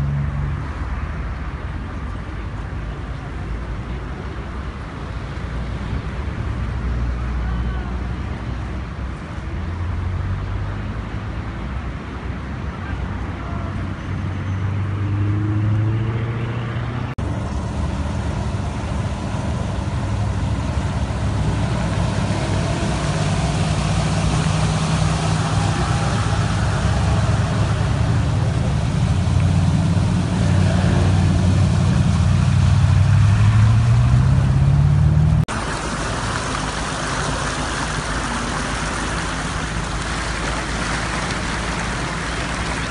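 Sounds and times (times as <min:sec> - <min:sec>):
vehicle engine running: 0:17.2 - 0:42.9
water splashing: 0:17.2 - 0:42.9.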